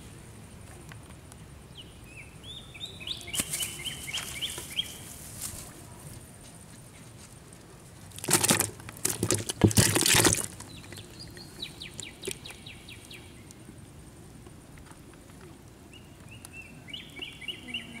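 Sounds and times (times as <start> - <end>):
birds chirping: 1.6 - 5.1, 10.4 - 13.6, 15.9 - 18.0
fish splashing in water: 8.1 - 12.6.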